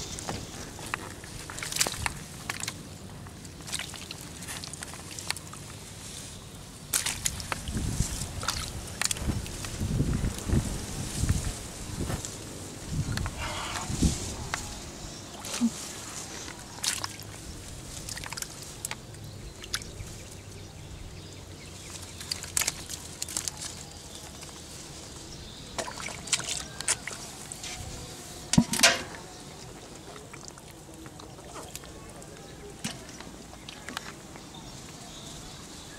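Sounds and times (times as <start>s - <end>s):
splashing in muddy water: 0.0s - 5.8s, 6.8s - 10.1s, 15.2s - 20.0s, 21.8s - 24.4s, 25.7s - 27.8s, 28.5s - 34.7s.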